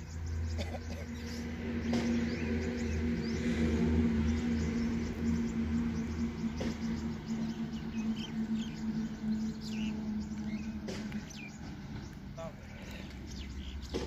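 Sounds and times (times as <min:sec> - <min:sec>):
low mechanical hum: 0:00.0 - 0:14.0
small birds chirping: 0:00.0 - 0:14.0.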